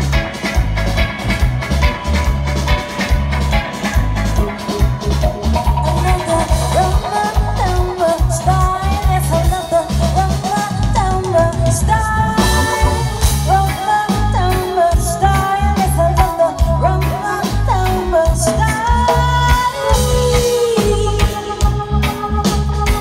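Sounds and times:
heavy repeating bass line: 0.0s - 16.1s, 20.1s - 23.0s
live reggae band playing: 0.0s - 23.0s
woman singing: 6.0s - 23.0s.

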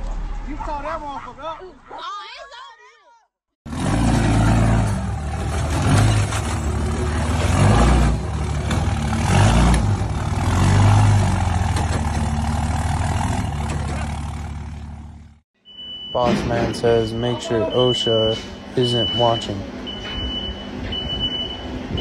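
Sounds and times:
vehicle engine revving: 3.7s - 15.4s.

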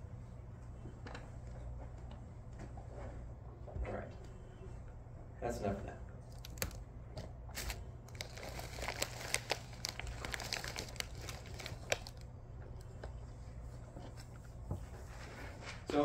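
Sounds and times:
crinkling handling noise: 6.2s - 15.9s.

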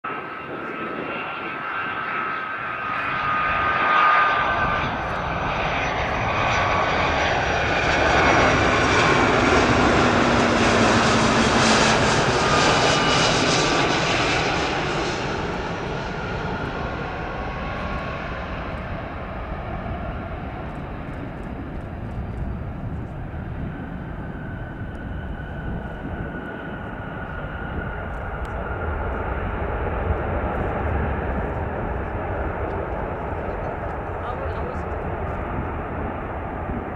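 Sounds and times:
jet engines whine and rumble: 0.0s - 36.9s.

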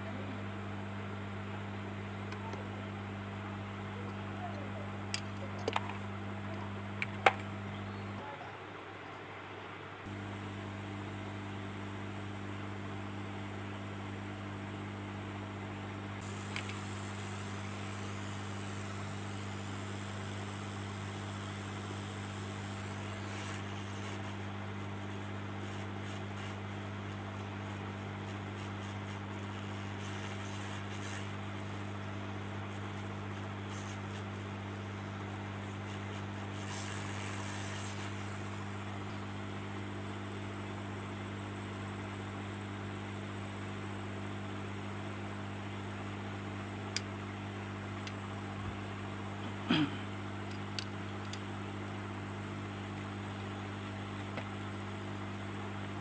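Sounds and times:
hot air gun blowing: 16.2s - 39.4s.

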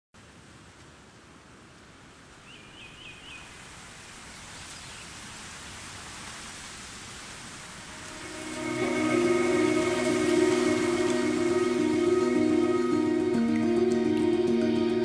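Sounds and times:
steady rushing noise: 7.4s - 14.6s
music: 7.9s - 15.0s.

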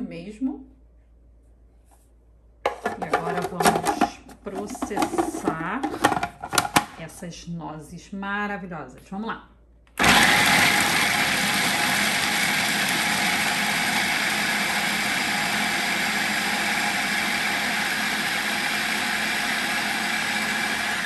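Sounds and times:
food processor grinding nuts: 10.0s - 21.0s.

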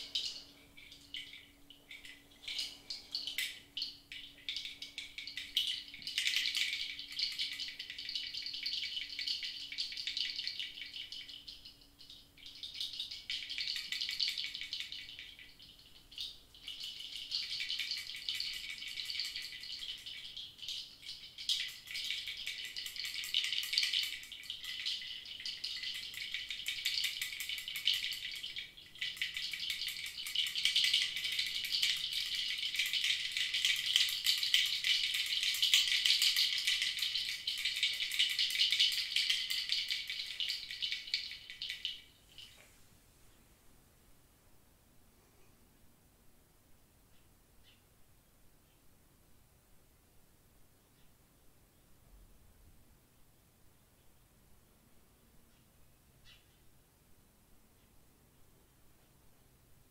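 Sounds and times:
hand rattle shaking: 25.6s - 42.5s.

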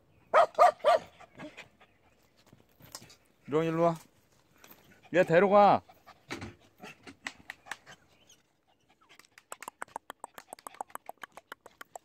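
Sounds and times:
sharp tongue clicks: 9.1s - 12.0s.

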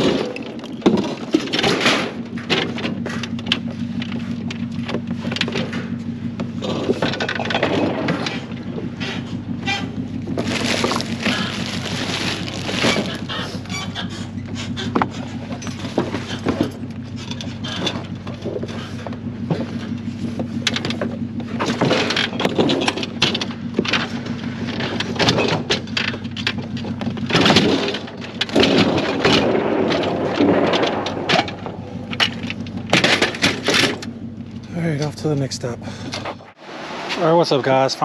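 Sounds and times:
low engine hum: 0.0s - 38.0s
plastic trash bags rustling: 10.3s - 13.7s.

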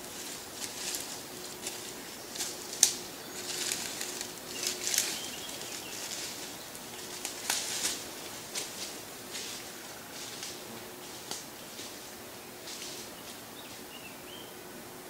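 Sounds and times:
rustling in dry undergrowth: 0.0s - 14.5s
twig snapping: 2.4s - 5.1s.

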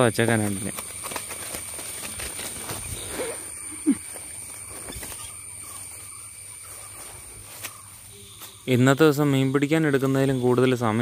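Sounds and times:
high-pitched insect drone: 0.0s - 11.0s
footsteps through grass: 0.4s - 10.6s.

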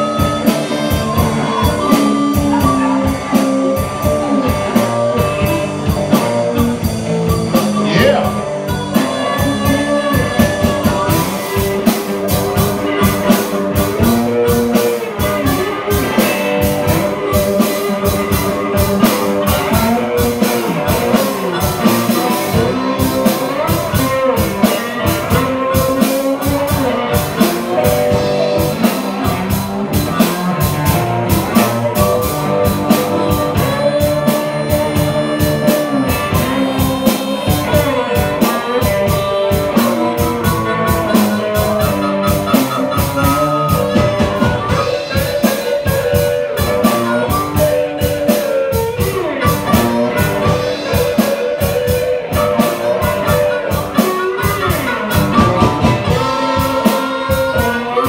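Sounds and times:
drum kit: 0.0s - 58.0s
electric guitar: 0.0s - 58.0s
harmonica bending notes: 0.0s - 58.0s.

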